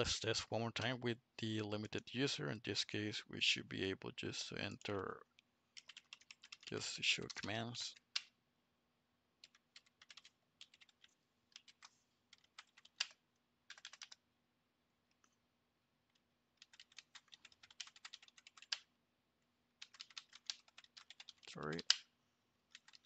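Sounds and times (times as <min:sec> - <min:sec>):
typing on computer keyboard: 0:05.8 - 0:08.3, 0:09.4 - 0:14.2, 0:16.6 - 0:18.9, 0:19.8 - 0:22.0, 0:22.7 - 0:23.0.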